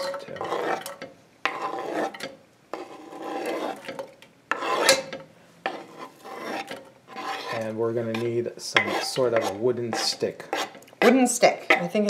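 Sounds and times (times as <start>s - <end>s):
onion scraped off cutting board: 0.0s - 0.9s, 1.5s - 2.2s, 2.8s - 3.9s, 4.5s - 11.3s.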